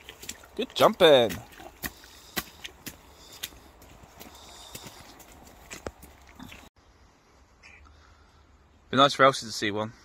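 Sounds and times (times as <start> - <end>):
footsteps on muddy path: 0.0 - 6.7.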